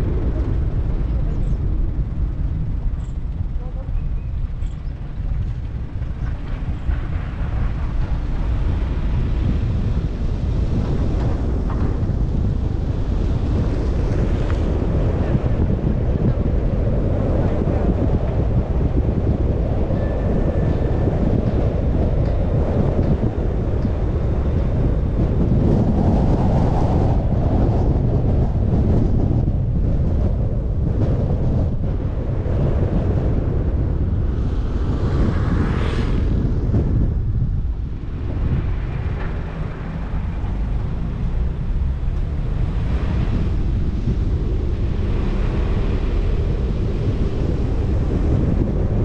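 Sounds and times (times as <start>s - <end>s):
car road noise: 0.0s - 49.0s
wind on microphone: 0.0s - 49.0s.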